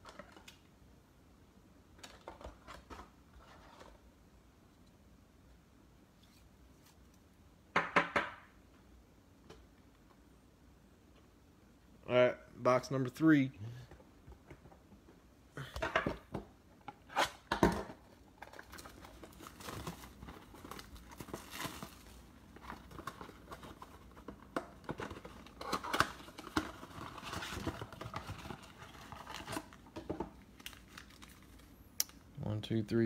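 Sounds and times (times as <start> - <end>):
card packs crinkling and rustling: 0.0 - 0.7, 17.3 - 31.9.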